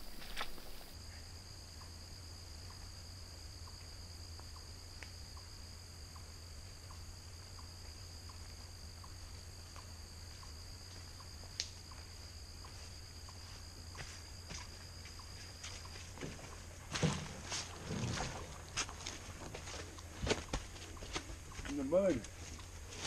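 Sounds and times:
insect chorus: 0.0s - 23.0s
faint regular ticks: 3.6s - 13.4s.

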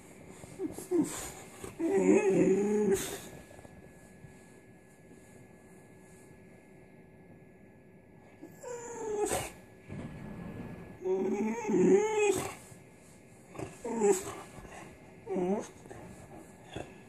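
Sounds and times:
dog whining: 0.4s - 3.3s, 8.4s - 9.6s, 11.0s - 12.6s, 13.5s - 17.0s.

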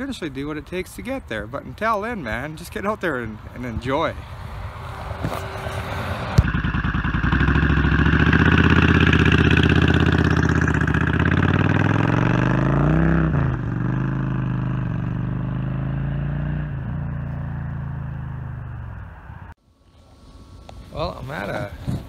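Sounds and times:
motorcycle engine accelerating: 5.0s - 19.5s.

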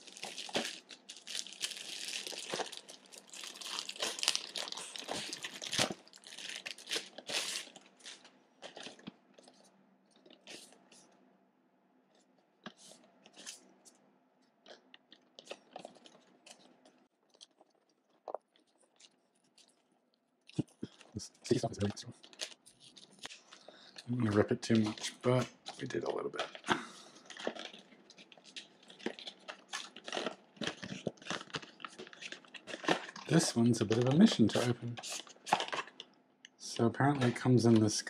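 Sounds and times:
package tearing and crinkling: 0.0s - 9.0s, 25.7s - 36.0s.

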